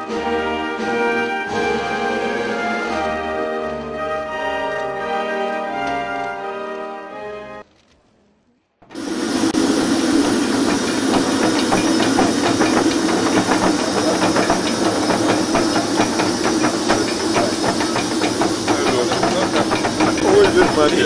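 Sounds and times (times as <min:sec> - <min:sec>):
jet engine running: 0:08.8 - 0:21.0.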